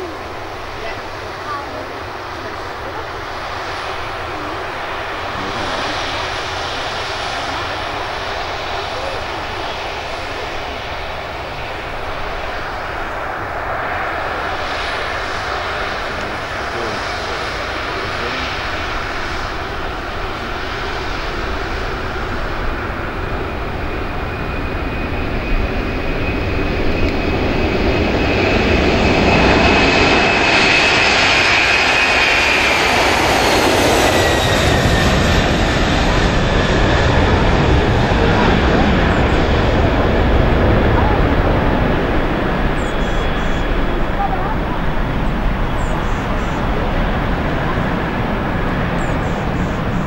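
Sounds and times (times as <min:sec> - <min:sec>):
high engine whine: 0:00.0 - 0:50.0
jet engine roar: 0:00.0 - 0:50.0.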